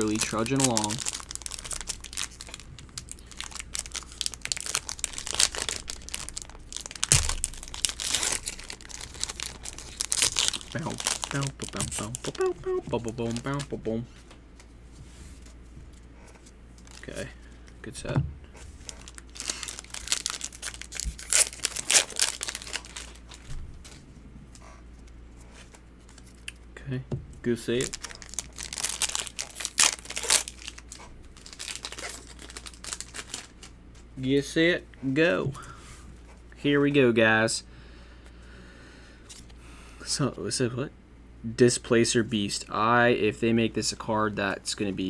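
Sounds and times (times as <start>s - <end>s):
foil wrapper crinkling and tearing: 0.0s - 13.8s, 16.8s - 17.3s, 18.8s - 24.0s, 27.7s - 33.7s
dull thump: 18.1s - 18.5s.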